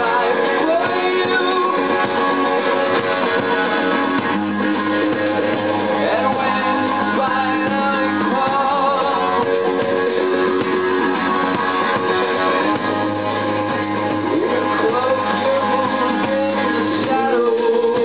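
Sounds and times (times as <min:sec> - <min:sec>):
man singing: 0:00.0 - 0:04.2, 0:05.8 - 0:10.4, 0:14.2 - 0:18.0
live rock band playing: 0:00.0 - 0:18.0.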